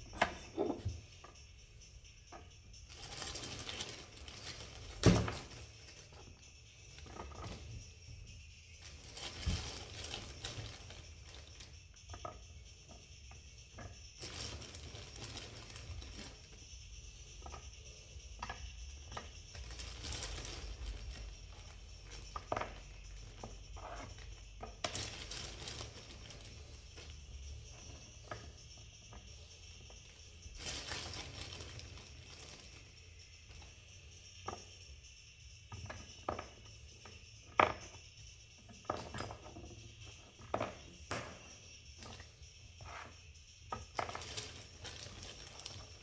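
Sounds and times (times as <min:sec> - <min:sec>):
rustles: 0:02.8 - 0:11.8, 0:14.2 - 0:34.0.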